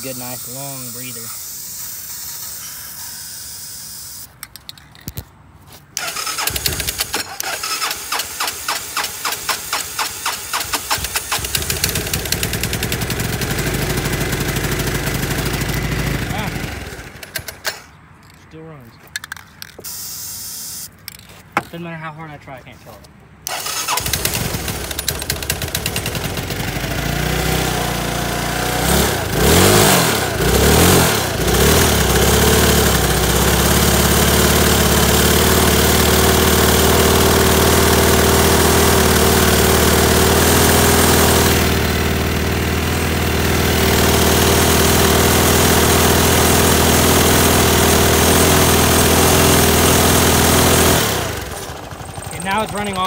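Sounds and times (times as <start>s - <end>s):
scooter engine running: 6.0s - 17.8s, 23.5s - 53.0s.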